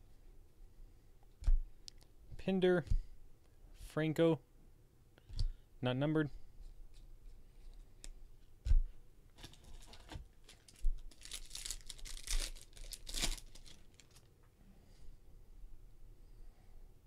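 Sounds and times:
foil wrapper tearing and crinkling: 0:09.4 - 0:14.3.

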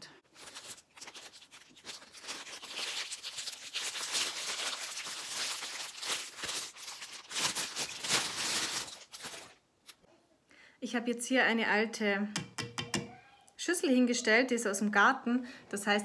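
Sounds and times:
cellophane crinkling: 0:00.2 - 0:10.0.

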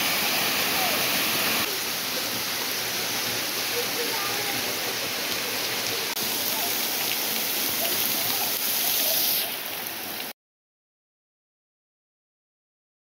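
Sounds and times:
waterfall splashing on rocks: 0:00.0 - 0:10.4.

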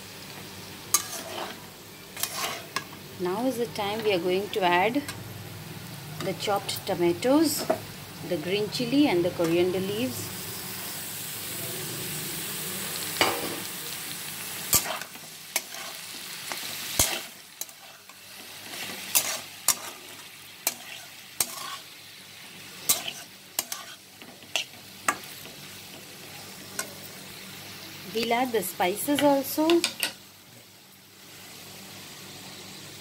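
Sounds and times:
food sizzling in hot oil: 0:00.0 - 0:33.0
metal spatula scraping a wok: 0:00.9 - 0:02.9, 0:14.7 - 0:22.0, 0:22.7 - 0:25.6.

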